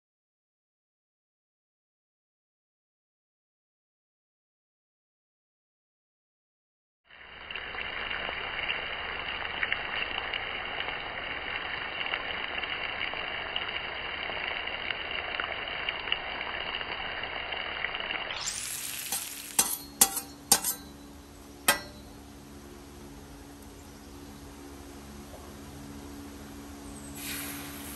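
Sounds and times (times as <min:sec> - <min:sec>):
food sizzling on griddle: 0:07.2 - 0:21.0, 0:27.2 - 0:27.9.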